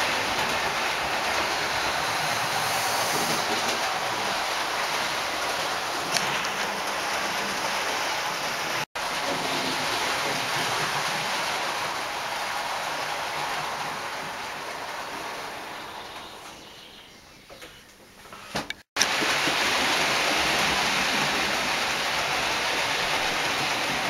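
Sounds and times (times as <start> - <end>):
model train rushing along track: 0.0 - 16.6, 19.0 - 24.0.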